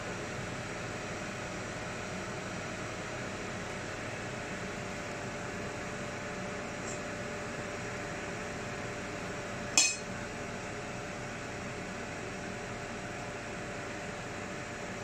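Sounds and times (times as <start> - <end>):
steady hum and hiss: 0.0 - 15.0
metal spoon clinking down: 9.8 - 10.1.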